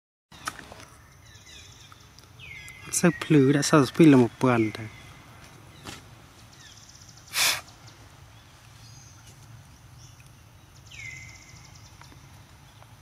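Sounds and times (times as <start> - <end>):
breathy puff of noise: 7.3 - 7.7.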